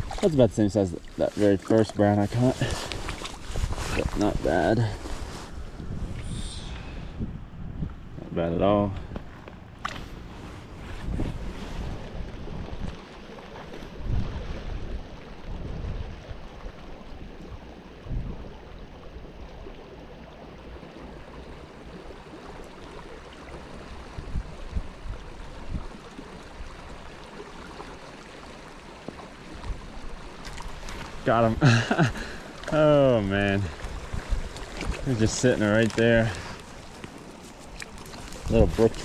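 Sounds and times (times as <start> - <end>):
wind buffeting microphone: 2.5 - 13.1, 13.9 - 18.6, 24.0 - 26.0, 32.8 - 36.7, 38.0 - 39.0.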